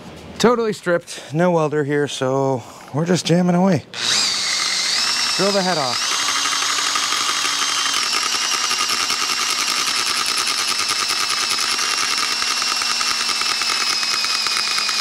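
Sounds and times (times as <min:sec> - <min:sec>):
cordless drill whining: 0:04.0 - 0:15.0.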